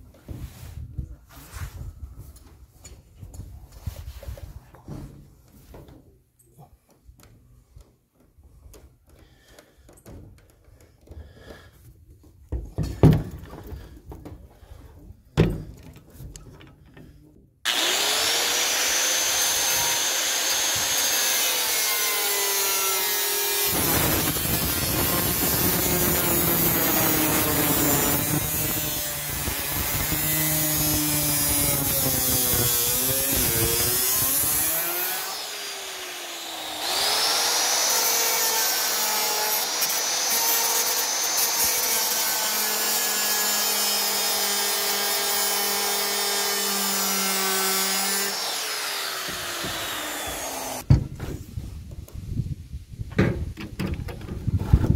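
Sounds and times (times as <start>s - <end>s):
circular saw cutting sheet metal: 17.7s - 50.8s.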